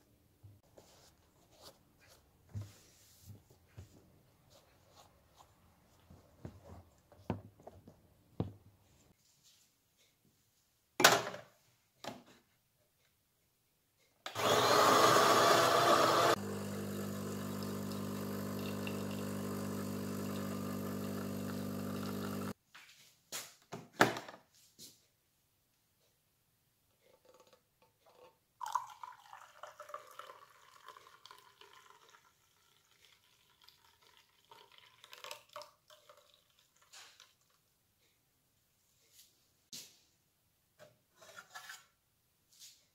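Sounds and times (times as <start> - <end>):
coffee machine pump humming: 14.4 - 22.5
water pouring into a mug: 16.9 - 22.5, 28.1 - 37.6.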